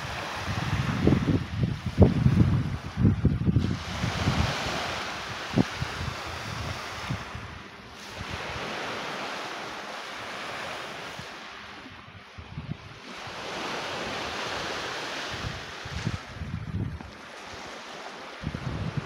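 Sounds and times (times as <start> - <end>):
waves washing onto pebble beach: 0.0 - 2.9
wind buffeting microphone: 0.0 - 9.4, 10.4 - 19.0.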